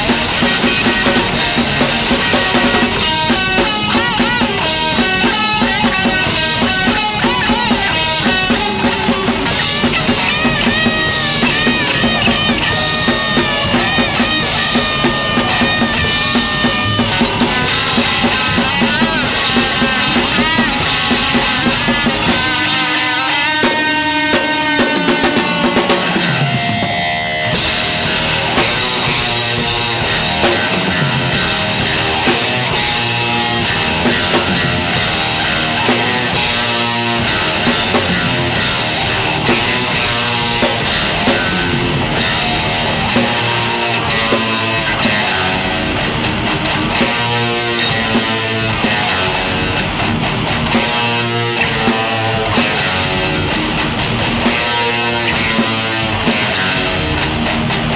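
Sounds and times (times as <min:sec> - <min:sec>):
bass guitar: 0:00.0 - 0:57.9
distorted electric guitars: 0:00.0 - 0:57.9
drum kit beat: 0:00.0 - 0:57.9.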